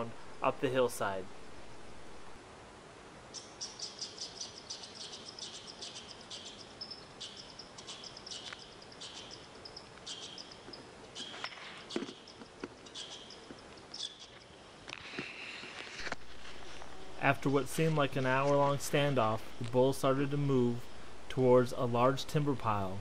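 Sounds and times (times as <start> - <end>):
small bird chirping: 3.3 - 14.8.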